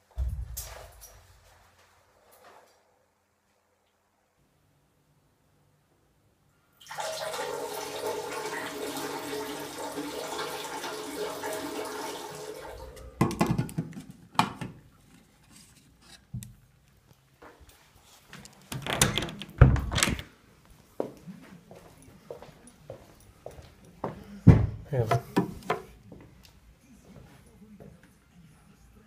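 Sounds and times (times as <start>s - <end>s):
water running: 6.8s - 13.6s
clicks and knocks: 18.7s - 20.3s.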